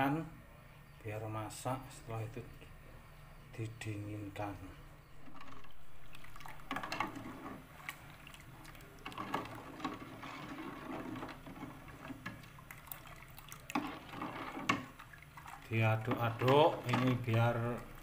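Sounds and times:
liquid sloshing: 5.1 - 18.0
ladle scraping metal pot: 5.2 - 17.8.

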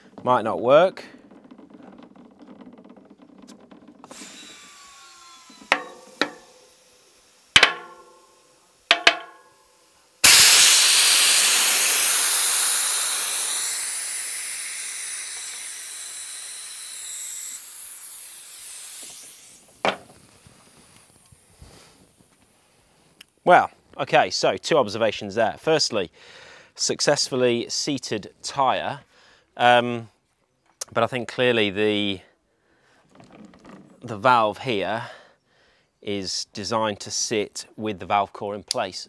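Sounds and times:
air rushing into tyre: 10.2 - 14.9.

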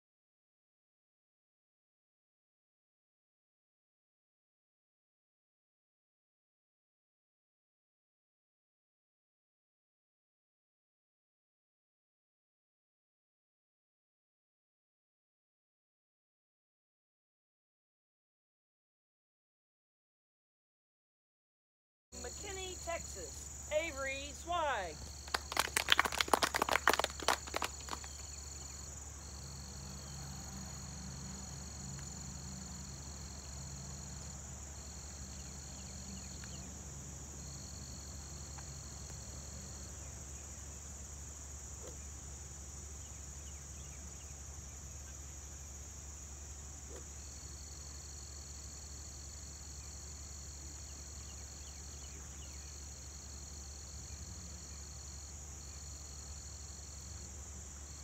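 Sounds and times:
crickets trilling: 22.2 - 58.0
high continuous insect buzz: 22.2 - 58.0.

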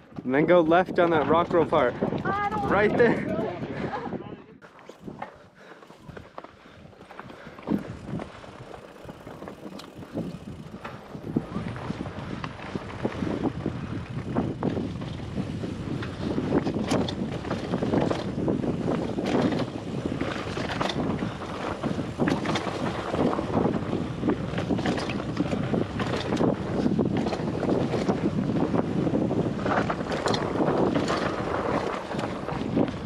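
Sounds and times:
wind buffeting microphone: 0.0 - 33.0
tyres crunching over gravel: 4.6 - 12.0
bike rattling clicks: 4.8 - 33.0.

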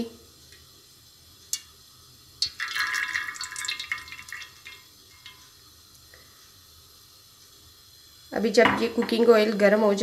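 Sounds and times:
oil pouring into metal pan: 1.6 - 6.4
drips: 2.4 - 6.3.

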